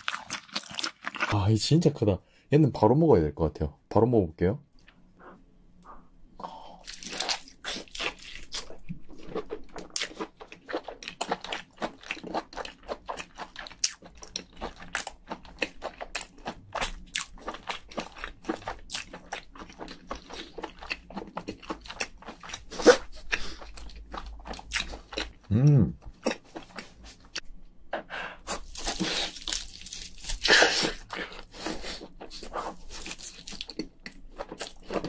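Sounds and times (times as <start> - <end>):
chewing with wet smacks: 6.8 - 25.5, 28.6 - 35.0.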